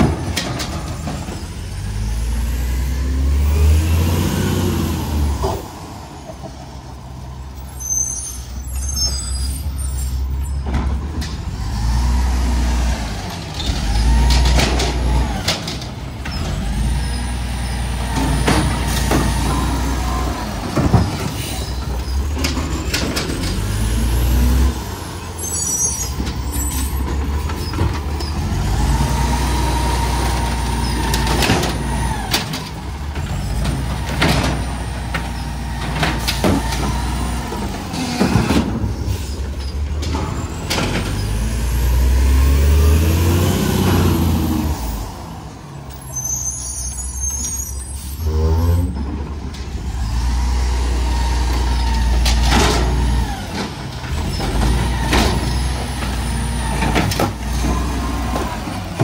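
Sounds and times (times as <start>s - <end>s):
clunks: 0.0s - 1.6s, 10.2s - 11.7s, 30.2s - 42.0s, 51.4s - 59.0s
garbage truck engine revving: 0.0s - 6.1s, 8.7s - 59.0s.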